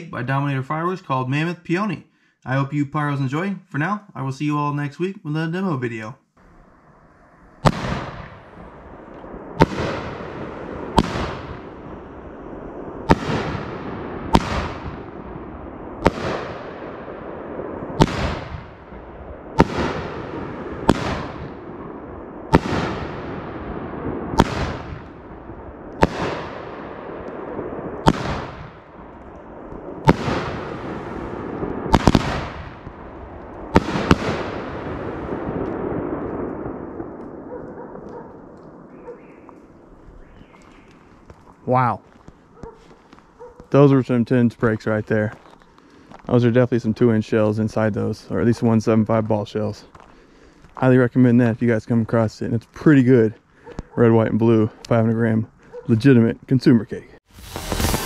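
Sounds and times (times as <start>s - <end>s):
firework shells bursting: 6.7s - 43.4s, 57.3s - 58.0s.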